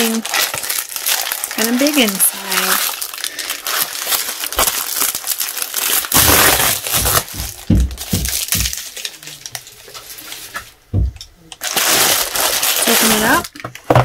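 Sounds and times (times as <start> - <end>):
plastic mailer crinkling: 0.0 - 10.8, 11.6 - 14.0
dull knocks: 6.2 - 8.8, 10.9 - 11.2.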